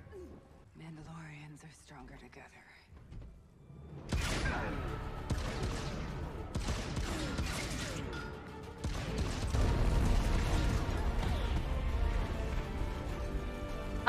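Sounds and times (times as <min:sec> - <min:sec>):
dramatic film score: 0:00.0 - 0:14.0
crashes and crackling hits: 0:04.1 - 0:12.6.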